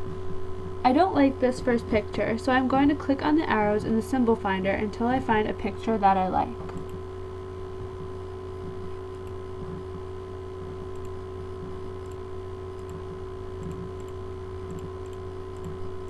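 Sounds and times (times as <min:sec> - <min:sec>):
low electrical hum: 0:00.0 - 0:16.0
computer mouse clicks: 0:06.6 - 0:07.0, 0:09.0 - 0:09.8, 0:10.8 - 0:11.2, 0:12.0 - 0:15.8.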